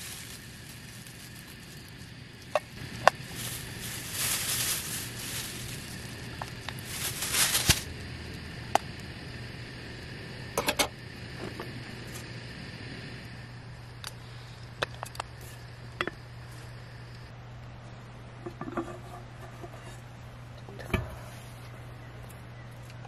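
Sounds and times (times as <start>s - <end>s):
meat sizzling in a frying pan: 0.0s - 11.4s
steady low hum: 0.0s - 23.0s.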